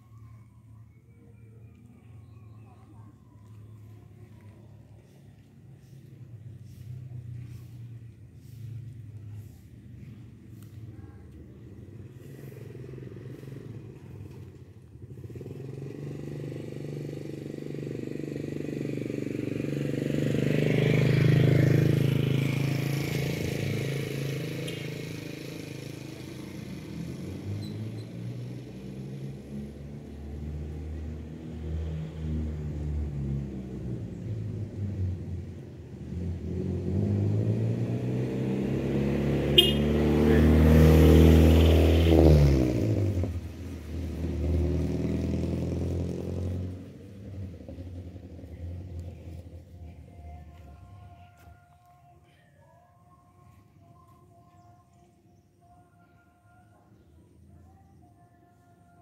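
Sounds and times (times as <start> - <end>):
vehicle engine passing: 1.8 - 51.5
engine revving: 11.7 - 50.1.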